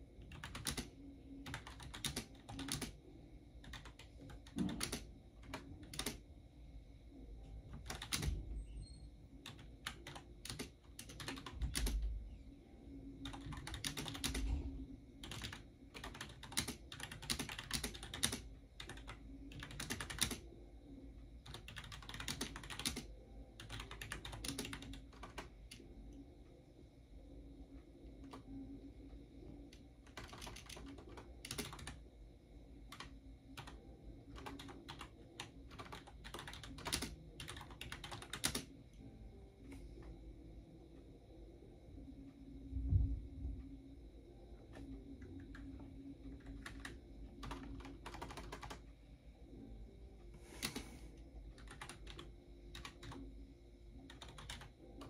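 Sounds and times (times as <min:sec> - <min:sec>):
typing on a computer keyboard: 0:00.2 - 0:03.0, 0:03.6 - 0:06.2, 0:07.7 - 0:08.4, 0:09.4 - 0:12.2, 0:13.2 - 0:20.5, 0:21.4 - 0:25.8, 0:29.7 - 0:32.0, 0:32.9 - 0:38.8, 0:44.7 - 0:48.9, 0:50.6 - 0:50.9, 0:51.5 - 0:53.3, 0:54.0 - 0:55.0.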